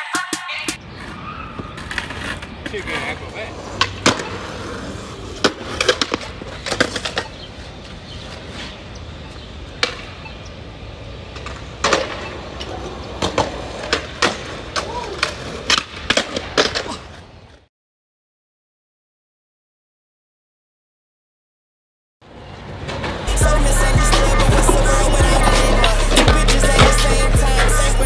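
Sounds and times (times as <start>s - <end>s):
skateboard wheels rolling on concrete: 0.0s - 17.7s, 22.2s - 28.0s
skateboard deck clacking: 1.0s - 7.4s, 9.7s - 10.2s, 11.3s - 17.2s, 24.2s - 27.3s.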